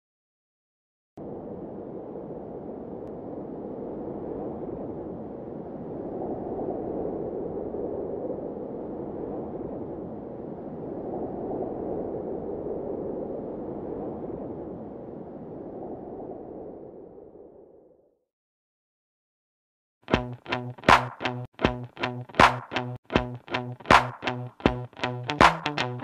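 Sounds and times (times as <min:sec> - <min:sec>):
soft rushing wind noise: 0:01.2 - 0:18.0.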